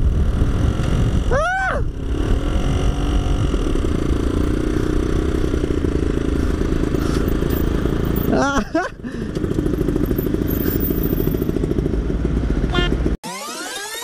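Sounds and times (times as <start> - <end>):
wind rush on microphone: 0.0 - 5.0
two-stroke engine running hard: 0.0 - 13.2.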